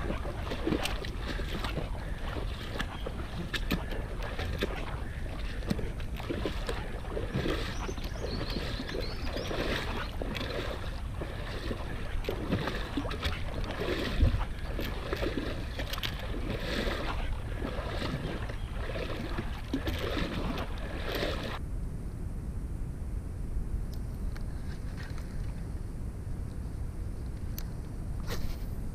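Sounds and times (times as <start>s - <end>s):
water sloshing and splashing: 0.0s - 21.6s
wind on microphone: 0.0s - 28.9s.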